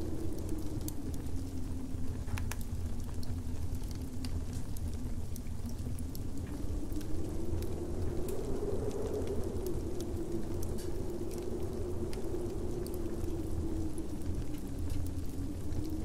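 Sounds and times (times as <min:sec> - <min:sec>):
howling wind rumble: 0:00.0 - 0:16.0
wood fire crackling: 0:00.0 - 0:16.0.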